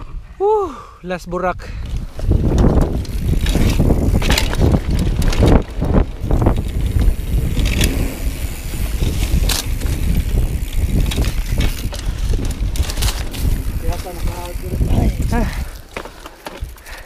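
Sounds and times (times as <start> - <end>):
wind buffeting microphone: 1.6 - 17.0
bike tyres rumbling over dirt: 1.8 - 17.0
bike knocking and rattling: 1.9 - 17.0.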